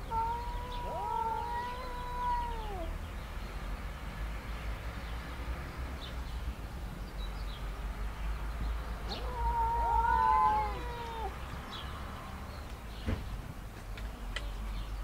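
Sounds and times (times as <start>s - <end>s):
cats yowling: 0.0s - 3.0s, 9.1s - 11.4s.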